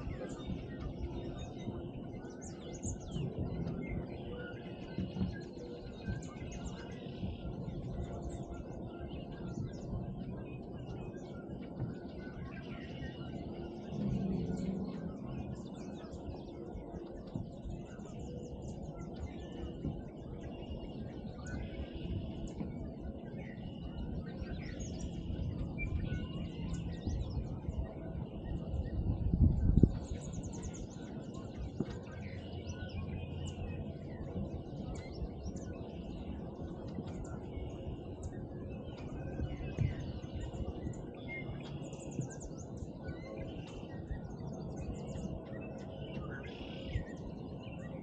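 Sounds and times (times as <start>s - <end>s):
songbirds singing and calling: 0.0s - 48.0s
low rumble: 13.7s - 16.6s.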